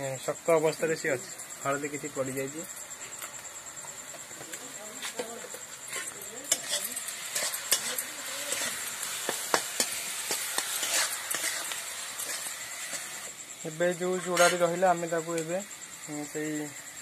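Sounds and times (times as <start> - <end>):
oil and spices sizzling: 0.0 - 17.0
metal spatula scraping a pan: 5.0 - 13.3, 14.0 - 14.9.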